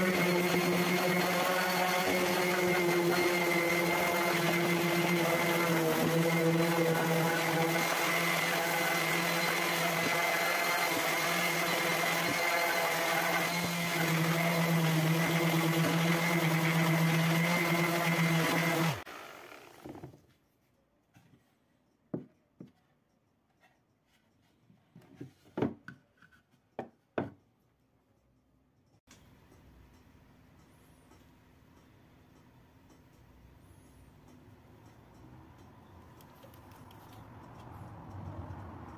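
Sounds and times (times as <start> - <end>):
orbital sander on wood: 0.0 - 19.9.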